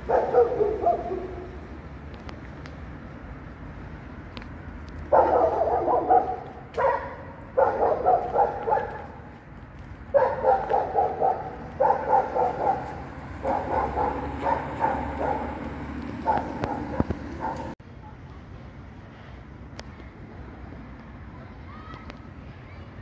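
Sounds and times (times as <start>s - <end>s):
dog barking: 0.0s - 1.6s, 5.1s - 9.2s, 10.1s - 17.8s.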